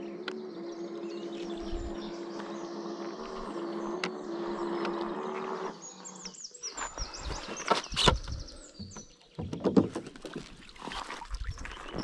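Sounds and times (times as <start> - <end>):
electric motors humming: 0.0 - 9.0
small birds chirping: 0.0 - 12.0.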